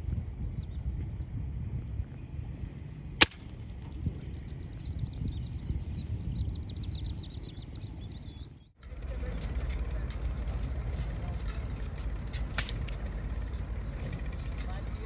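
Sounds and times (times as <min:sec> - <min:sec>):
birds chirping: 0:00.0 - 0:15.0
air gun shot: 0:03.2 - 0:03.6.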